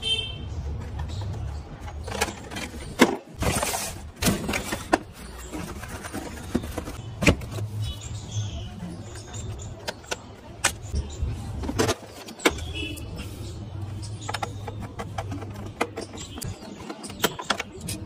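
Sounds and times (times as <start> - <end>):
toy car handling noises: 0.9 - 7.7, 14.0 - 18.0.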